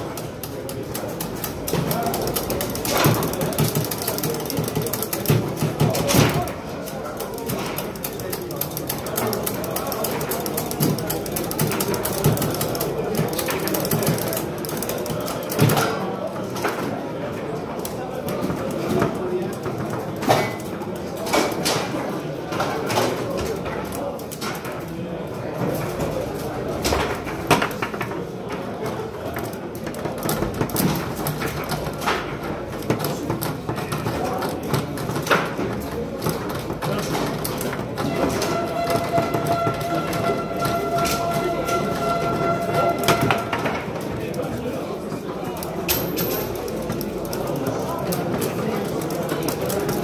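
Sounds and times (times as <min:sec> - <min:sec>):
background noise: 0:00.0 - 0:50.0
foosball ball and rods rattling: 0:00.0 - 0:50.0
foosball ball clacking: 0:26.9 - 0:44.5.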